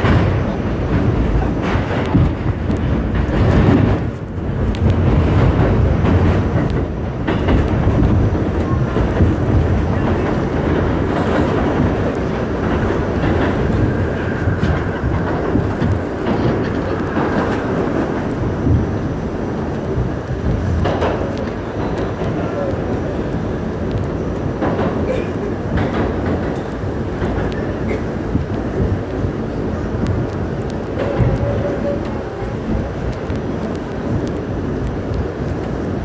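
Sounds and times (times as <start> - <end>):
wheels clattering over track: 0.0 - 19.0
subway train rumbling: 0.0 - 36.0.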